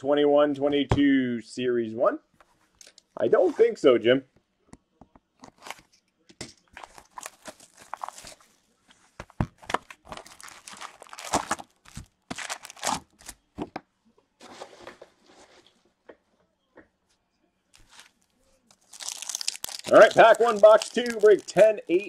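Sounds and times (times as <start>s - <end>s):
card packs tapping: 9.2s - 13.8s, 18.9s - 22.0s
foil and cardboard tearing: 10.2s - 13.4s, 18.8s - 21.7s.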